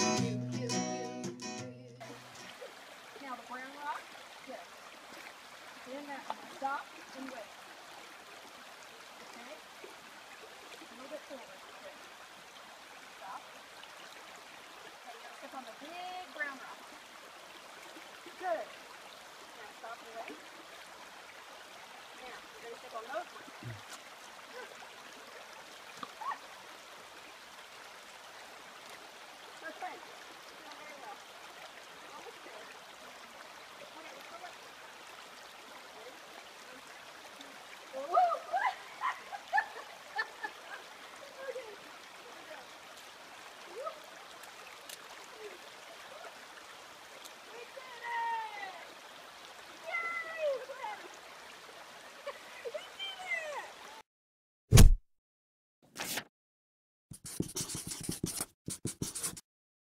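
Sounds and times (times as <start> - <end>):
brook babbling over stones: 2.0 - 54.0
loud thud: 54.7 - 55.0
short swish: 54.7 - 55.0
pen scribbling on paper: 57.1 - 59.4.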